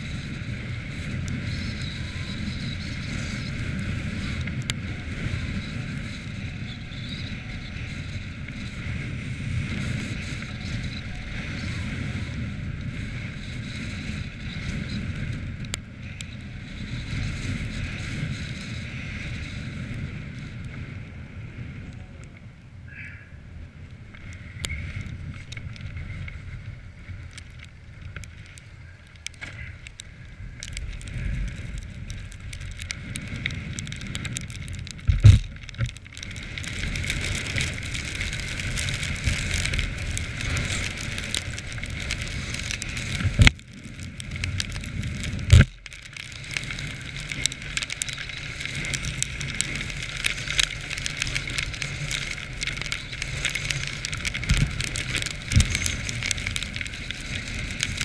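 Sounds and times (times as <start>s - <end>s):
light rattling and crackling: 23.8s - 58.0s.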